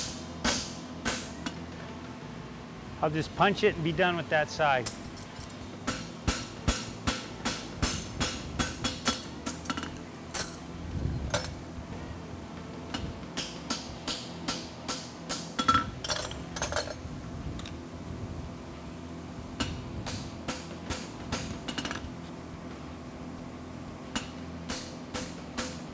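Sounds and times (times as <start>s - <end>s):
hammer striking metal on anvil: 5.8s - 10.6s, 13.4s - 15.9s.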